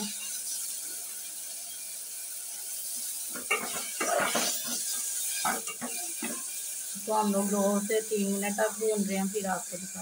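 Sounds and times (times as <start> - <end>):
lentils sizzling in oil: 0.0 - 10.0
metal spatula scraping a pot: 2.8 - 6.9.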